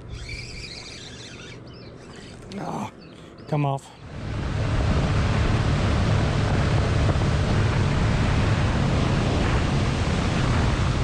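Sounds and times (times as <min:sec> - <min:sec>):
outboard motor running: 0:00.0 - 0:11.0
rushing water: 0:04.0 - 0:11.0
wind noise on microphone: 0:04.0 - 0:11.0.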